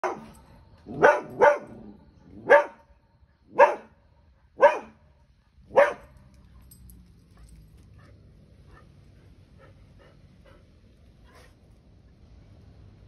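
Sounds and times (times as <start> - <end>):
dog barking sharply: 0.0 - 0.3, 0.9 - 1.8, 2.5 - 2.8, 3.6 - 3.9, 4.6 - 5.0, 5.7 - 6.2.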